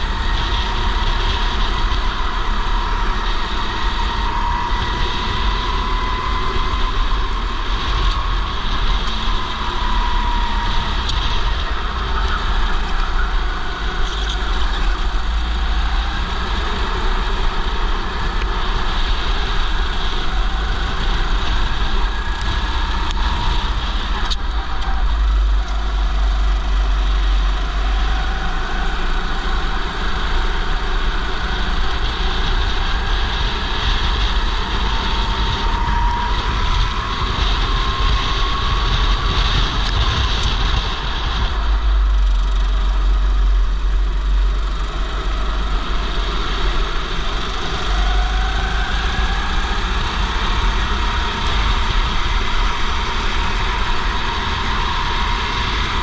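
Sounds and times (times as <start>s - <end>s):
go-kart engine running: 0.0s - 56.0s
wind rumble on camera: 0.0s - 56.0s.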